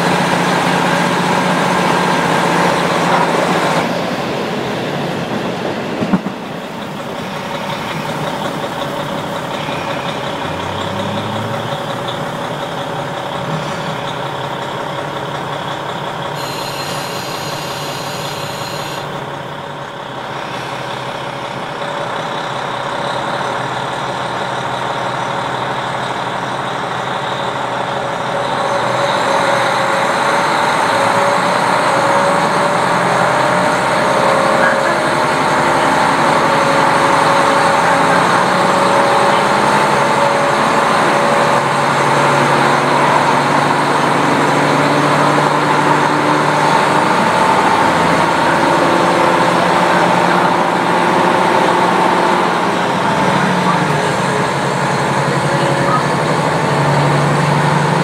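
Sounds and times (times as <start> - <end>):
diesel engine running: 0.0 - 58.0
wheels on rails: 0.0 - 58.0
brief high-pitched tone: 9.6 - 10.2, 16.4 - 19.2.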